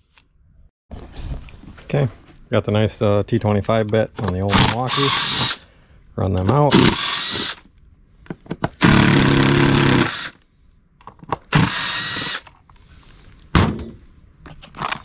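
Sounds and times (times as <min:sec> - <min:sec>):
cordless driver running screws: 0:04.5 - 0:05.6, 0:06.7 - 0:07.6, 0:08.8 - 0:10.4, 0:11.5 - 0:12.6.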